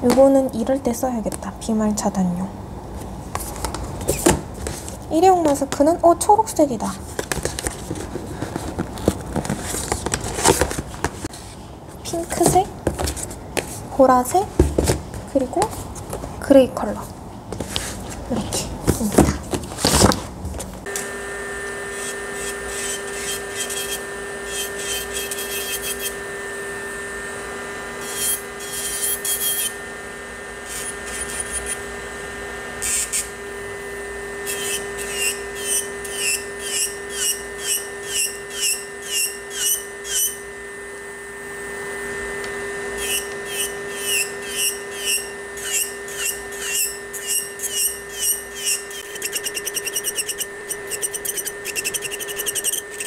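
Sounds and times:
drill bit grinding nail: 20.9 - 26.8, 28.0 - 30.0, 30.6 - 32.0, 32.8 - 40.5, 42.9 - 53.0
electric nail drill whining: 20.9 - 53.0.

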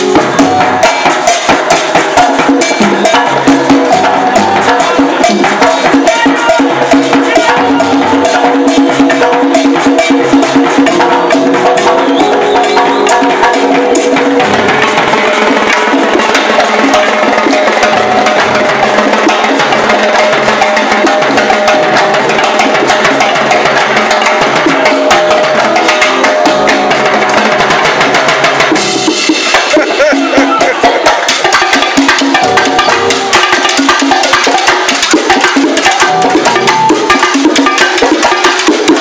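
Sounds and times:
salsa band playing: 0.0 - 39.0
cowbell strokes: 28.8 - 39.0.

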